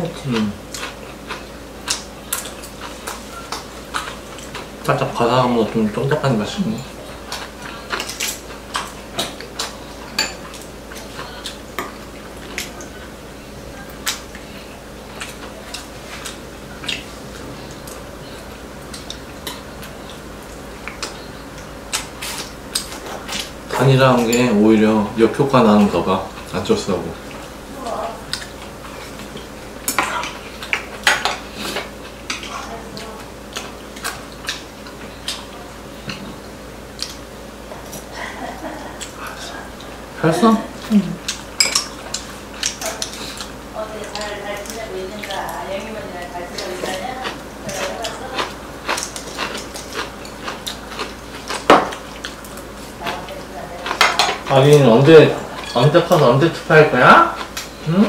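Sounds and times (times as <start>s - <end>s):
utensils clinking on ceramic bowls: 41.6s - 42.0s.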